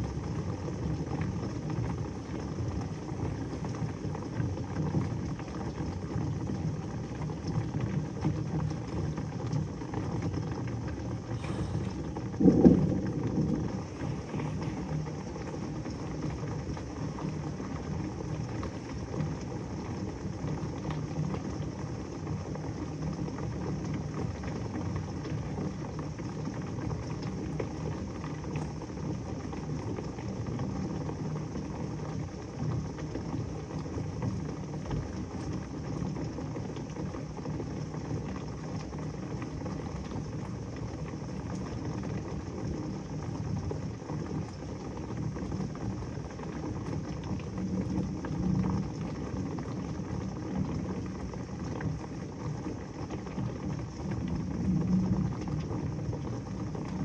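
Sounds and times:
heavy rain falling: 8.6 - 26.0.

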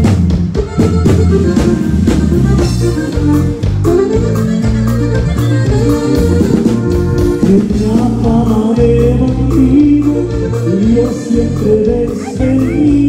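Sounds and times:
live dance band playing: 0.0 - 13.0
person singing: 7.3 - 13.0.

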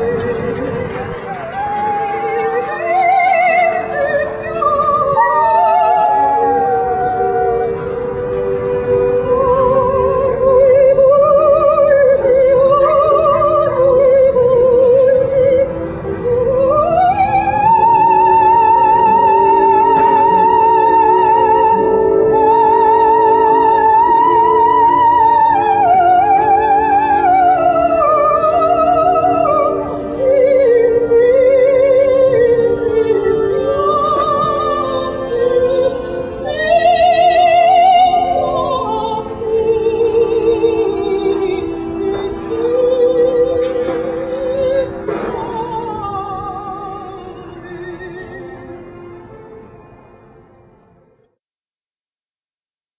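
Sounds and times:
opera music: 0.0 - 51.3
dog howling: 5.2 - 7.8.

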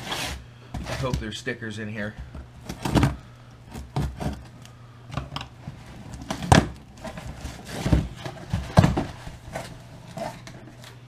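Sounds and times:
cardboard rustling: 0.0 - 1.4, 2.6 - 4.6, 5.5 - 11.0.

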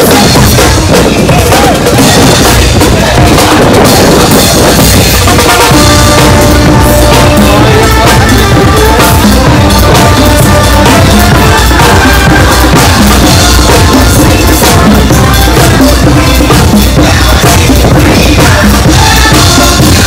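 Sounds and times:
bass drum beat: 0.0 - 20.0
marching band playing: 0.0 - 20.0
snare drum beat: 0.0 - 20.0
brass holding notes: 5.2 - 20.0.

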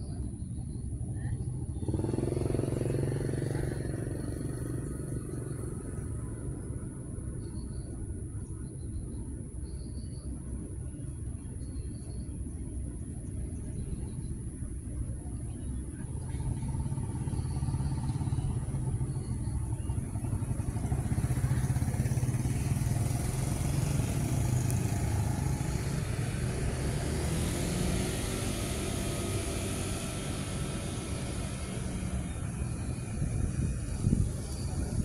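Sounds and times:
vehicle engine running: 0.0 - 9.4, 13.0 - 35.0.

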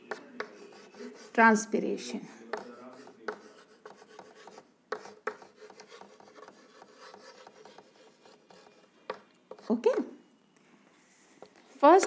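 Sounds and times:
sharp chalk taps: 0.0 - 1.3, 2.4 - 10.0
chalk scratching on blackboard: 0.1 - 1.4, 2.4 - 10.0.

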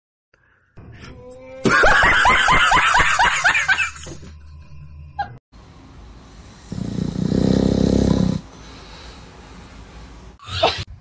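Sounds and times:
dog snoring: 6.6 - 8.5.

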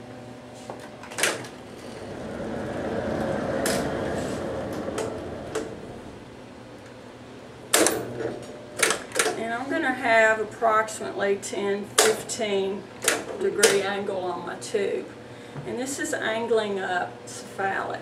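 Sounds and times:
rolling noise: 1.3 - 7.7.

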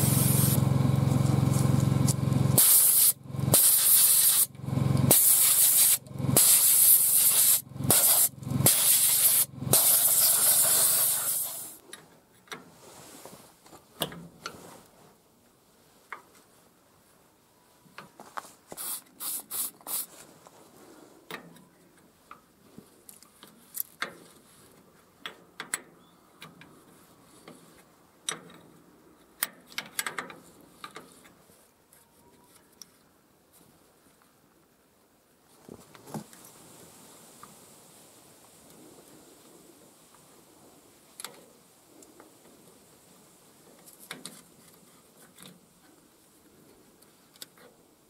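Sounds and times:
aerosol spray can hissing: 0.0 - 0.6, 2.6 - 4.5, 5.1 - 11.8, 18.8 - 20.1.

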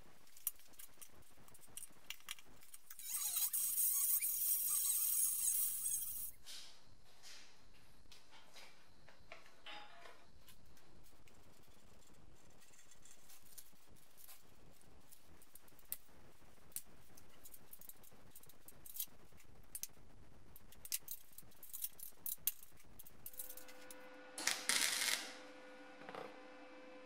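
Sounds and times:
steady hum: 10.4 - 27.0
welding arc crackling: 24.4 - 25.4.

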